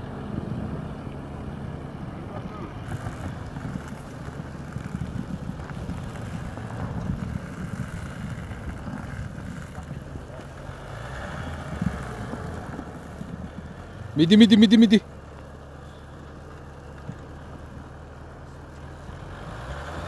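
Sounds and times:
pickup engine under load: 0:00.0 - 0:20.0
tyres churning through snow: 0:00.0 - 0:20.0.

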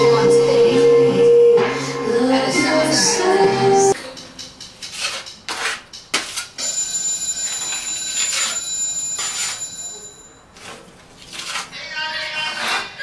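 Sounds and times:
putty knife scraping a wall: 0:04.8 - 0:06.5, 0:10.6 - 0:13.0.

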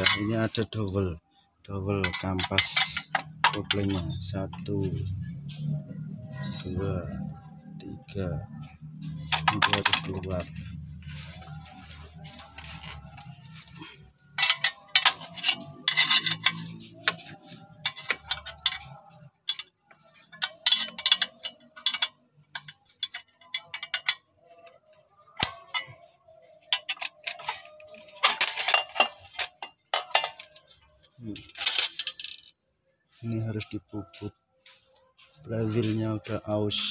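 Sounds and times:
metallic clicking and clinking: 0:00.0 - 0:00.6, 0:02.0 - 0:04.7, 0:09.0 - 0:32.6.

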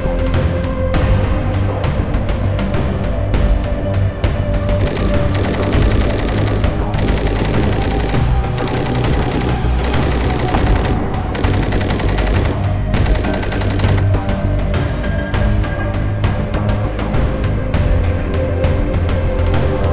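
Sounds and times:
background music: 0:00.0 - 0:19.9
machine gun firing bursts: 0:04.8 - 0:14.0.

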